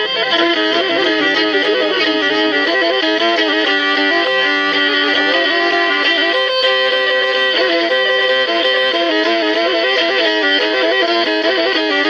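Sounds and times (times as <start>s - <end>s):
bowed fiddle folk melody: 0.0s - 12.0s.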